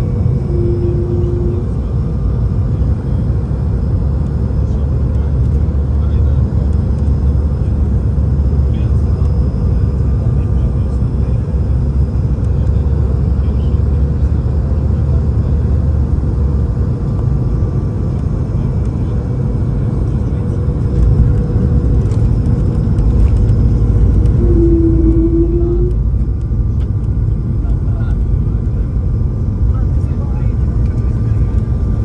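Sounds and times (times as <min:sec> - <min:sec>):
aircraft cabin engine rumble: 0:00.0 - 0:32.0
short steady tone: 0:00.4 - 0:01.8, 0:24.3 - 0:26.2.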